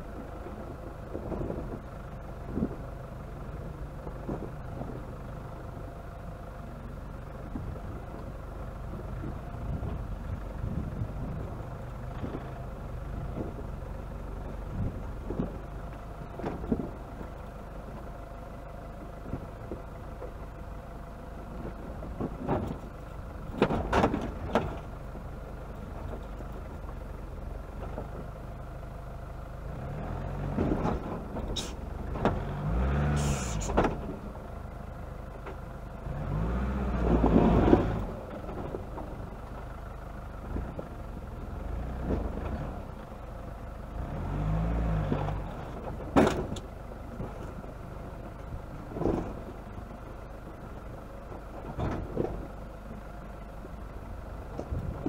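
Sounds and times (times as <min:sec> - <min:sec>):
off-road vehicle engine revving: 0:29.6 - 0:34.4, 0:35.9 - 0:39.4, 0:40.4 - 0:50.8
knocks and rattles over stones: 0:45.1 - 0:47.7, 0:51.2 - 0:52.6.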